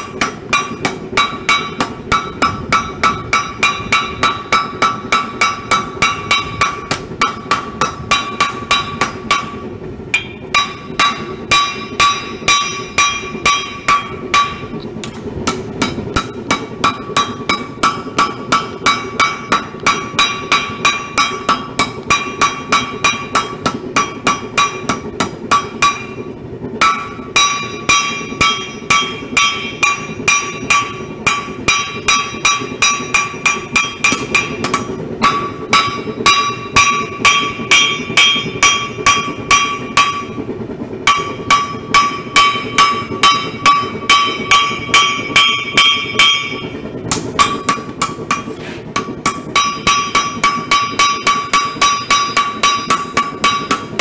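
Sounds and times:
hammer striking metal on anvil: 0:00.0 - 0:40.4, 0:41.0 - 0:54.0.

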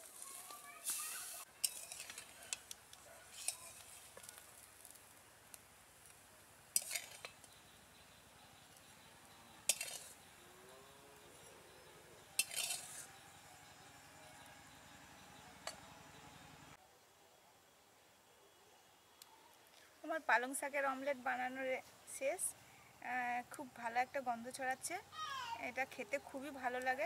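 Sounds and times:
spatula scraping a wok: 0:00.0 - 0:02.7, 0:03.3 - 0:05.0, 0:06.8 - 0:07.4, 0:09.7 - 0:10.2, 0:12.2 - 0:13.2.

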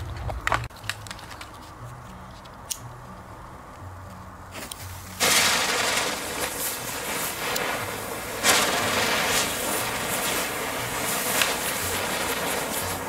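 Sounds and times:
firework fuse ticking: 0:04.1 - 0:13.0
firework hissing sparks: 0:05.0 - 0:13.0.

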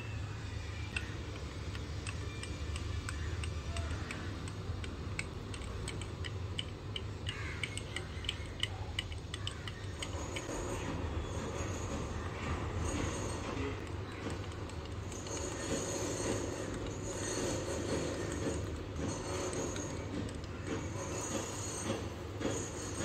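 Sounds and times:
wooden stirrer scraping glass jar: 0:12.8 - 0:23.0.

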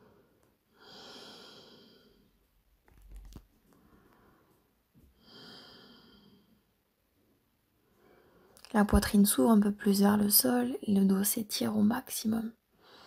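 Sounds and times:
faint breathing: 0:00.0 - 0:02.4, 0:03.7 - 0:06.7, 0:07.9 - 0:08.6, 0:12.8 - 0:13.0.

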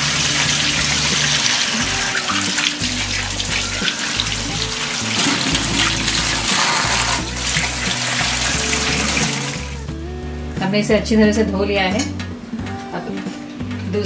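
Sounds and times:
tap water running and splashing: 0:00.0 - 0:09.9
background music with low bass: 0:00.0 - 0:14.0.

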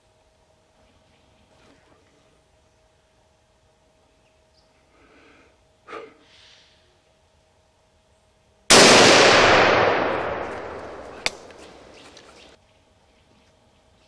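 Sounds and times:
rifle shot echoing: 0:08.7 - 0:12.4
sharp click: 0:10.5 - 0:12.3.

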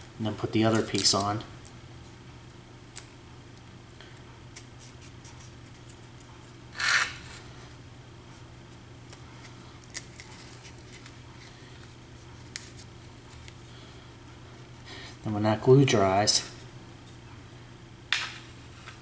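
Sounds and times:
tape rustle: 0:09.1 - 0:13.6
packing tape rubbing and crinkling: 0:09.4 - 0:13.6.

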